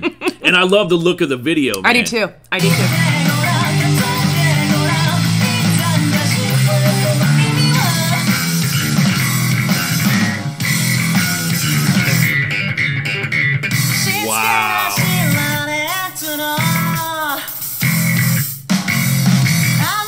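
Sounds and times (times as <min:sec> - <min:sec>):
rock music with electric bass: 0:02.7 - 0:15.6, 0:17.7 - 0:19.9.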